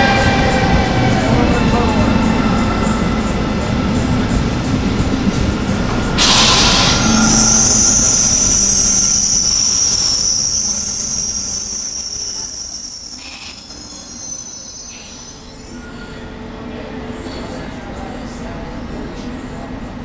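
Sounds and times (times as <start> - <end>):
train rail rumble: 0.0 - 19.6
short loud hiss: 6.2 - 9.1
high-pitched wheel squeal: 6.2 - 15.8.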